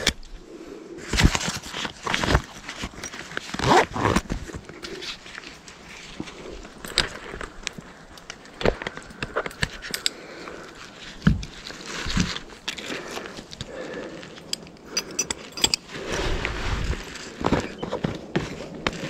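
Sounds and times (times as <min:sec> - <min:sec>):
climbing gear clinking on tree: 0:01.2 - 0:16.0.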